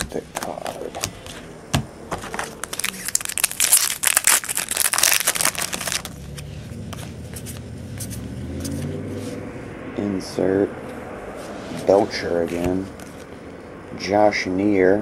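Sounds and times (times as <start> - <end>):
foil wrapper crinkling: 2.3 - 6.2.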